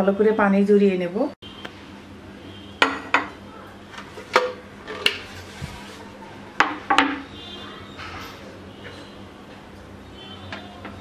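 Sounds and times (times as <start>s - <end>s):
kitchenware knocking and clinking: 2.8s - 3.4s, 4.2s - 5.3s, 6.6s - 7.3s.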